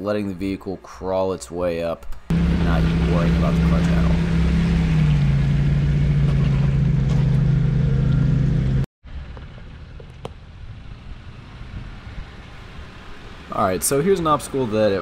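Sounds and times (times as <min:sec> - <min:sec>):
car engine running at low revs: 0:02.3 - 0:13.7.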